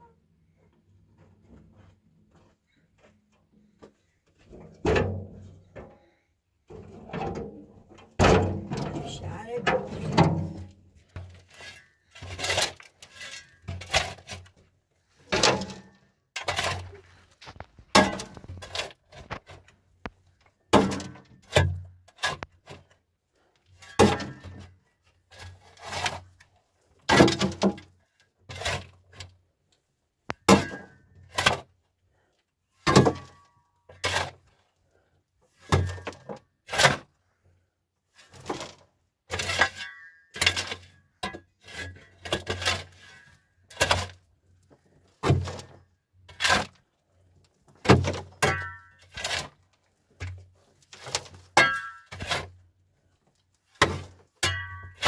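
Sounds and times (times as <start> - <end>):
sharp knocks and thuds: 8.2 - 9.1.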